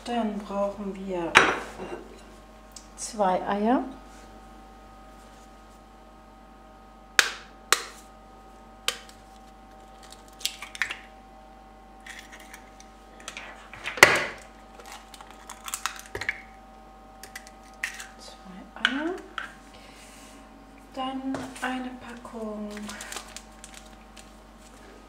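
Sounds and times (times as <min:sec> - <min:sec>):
faint steady hum: 0:00.0 - 0:25.0
eggs cracking on bowl rim: 0:10.0 - 0:11.1, 0:14.4 - 0:16.6, 0:17.2 - 0:18.2.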